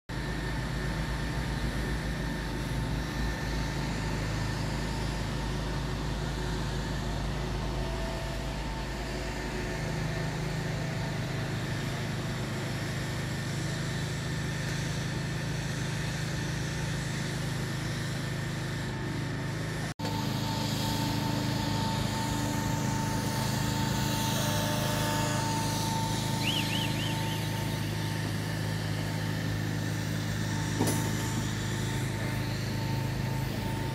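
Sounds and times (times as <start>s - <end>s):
machine hum: 0.1s - 33.9s
site noise: 20.0s - 31.2s.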